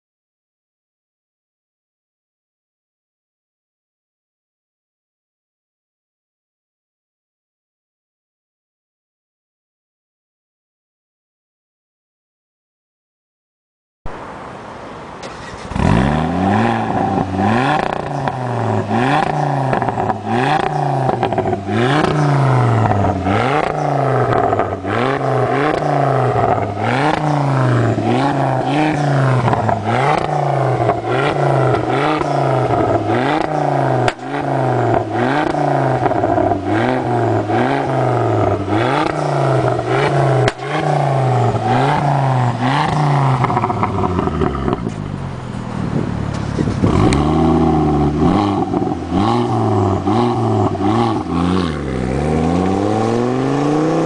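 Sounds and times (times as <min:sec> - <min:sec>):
car engine revving: 0:15.2 - 0:54.0.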